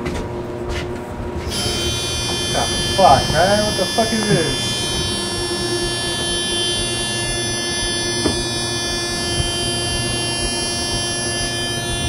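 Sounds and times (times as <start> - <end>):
electric buzzer tone: 1.4 - 12.0.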